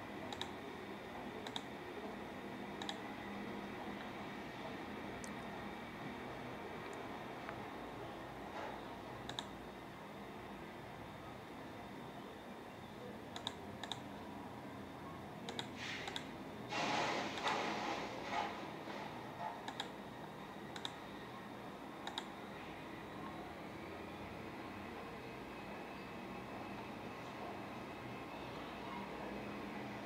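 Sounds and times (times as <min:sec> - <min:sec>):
computer mouse clicking: 0:00.2 - 0:00.6, 0:01.4 - 0:01.7, 0:02.8 - 0:03.0, 0:09.2 - 0:09.6, 0:13.3 - 0:14.1, 0:15.5 - 0:16.3, 0:19.4 - 0:20.0, 0:20.7 - 0:21.0, 0:22.0 - 0:22.4.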